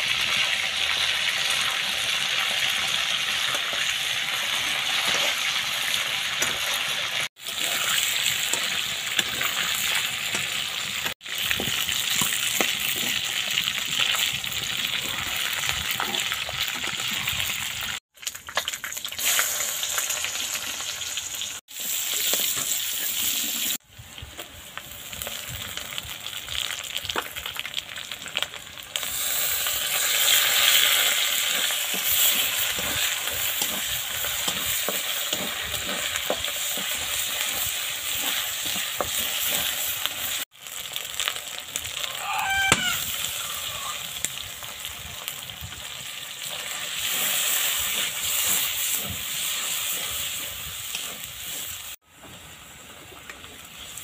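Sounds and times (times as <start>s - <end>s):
food sizzling in hot oil: 0.0s - 52.8s
metal spatula scraping pan: 7.4s - 11.2s, 29.9s - 40.4s, 46.7s - 51.8s.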